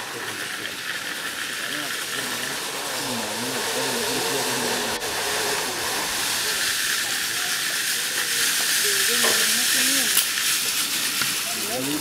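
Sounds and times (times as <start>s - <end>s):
zip-line trolley hissing on cable: 0.0s - 12.0s.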